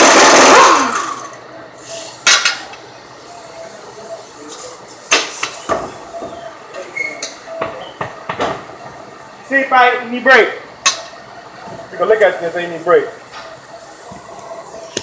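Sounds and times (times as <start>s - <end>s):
rushing power tool burst: 0.0s - 1.3s.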